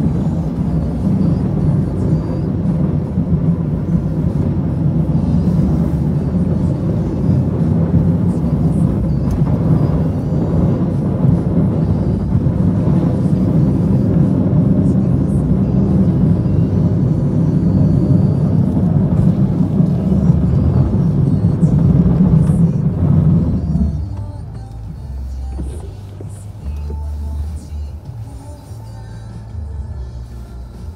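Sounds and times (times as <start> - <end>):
truck engine rumbling under load: 0.0 - 30.9.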